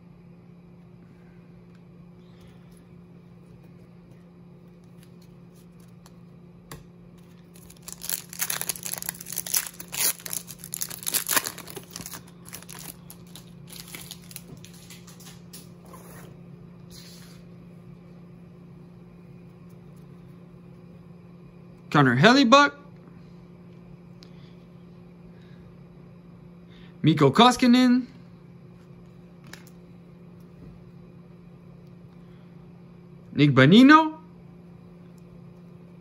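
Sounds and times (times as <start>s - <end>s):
foil wrapper tearing and crinkling: 7.4s - 15.1s.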